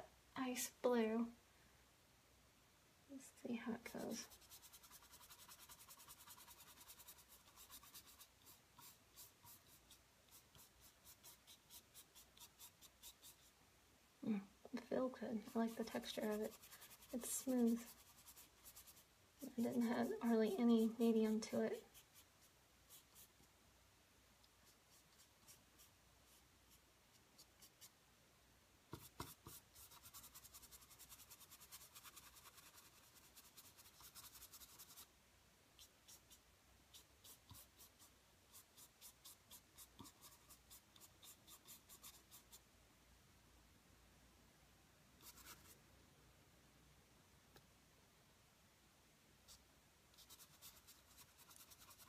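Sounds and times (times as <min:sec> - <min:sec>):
paintbrush scratching on canvas: 0:03.7 - 0:13.6, 0:15.3 - 0:23.4, 0:24.6 - 0:27.9, 0:28.9 - 0:35.1, 0:35.8 - 0:42.6, 0:45.2 - 0:45.8, 0:50.2 - 0:52.0.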